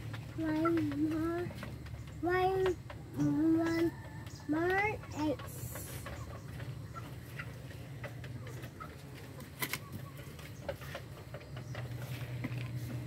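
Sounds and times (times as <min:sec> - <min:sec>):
low steady hum: 0:00.0 - 0:13.0
poultry calling: 0:03.1 - 0:12.8.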